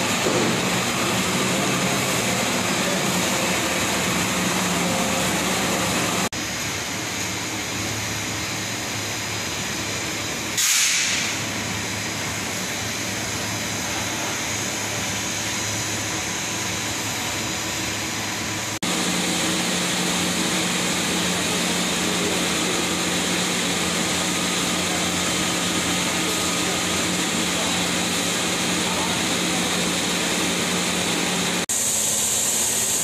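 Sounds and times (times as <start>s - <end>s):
machine hum: 0.0s - 10.6s, 11.4s - 33.0s
short hiss: 10.6s - 11.4s.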